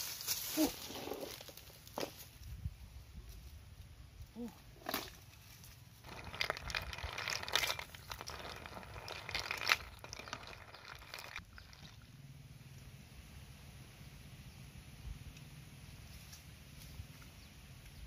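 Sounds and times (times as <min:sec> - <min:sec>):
crunching rustle of dry material: 0:00.0 - 0:02.5.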